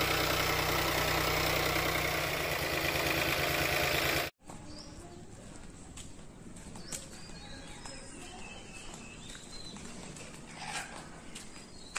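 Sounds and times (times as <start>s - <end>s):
tractor diesel engine idling: 0.0s - 4.3s.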